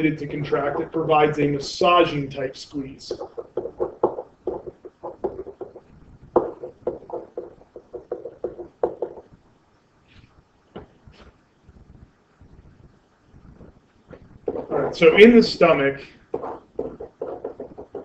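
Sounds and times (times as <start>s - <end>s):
stylus tapping on writing surface: 3.1s - 9.3s, 16.3s - 18.0s.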